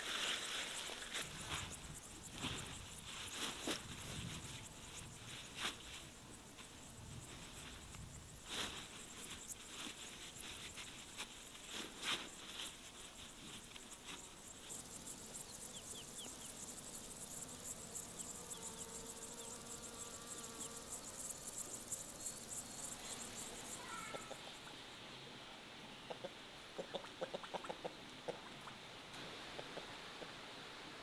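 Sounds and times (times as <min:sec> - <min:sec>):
rustles and knocks in grass: 0:00.0 - 0:14.8
insects chirring: 0:00.0 - 0:25.3
hen clucking: 0:26.0 - 0:28.8.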